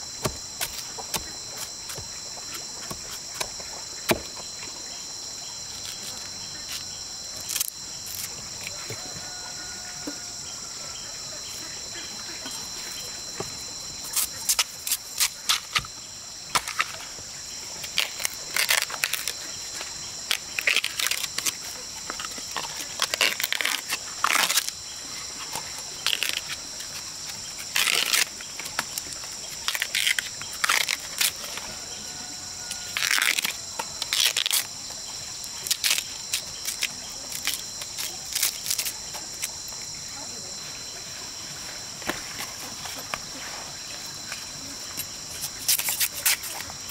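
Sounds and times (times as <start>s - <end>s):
high insect drone: 0.0s - 46.9s
bamboo husks tearing and snapping: 5.7s - 10.1s, 12.5s - 15.9s, 17.7s - 39.8s, 44.9s - 46.9s.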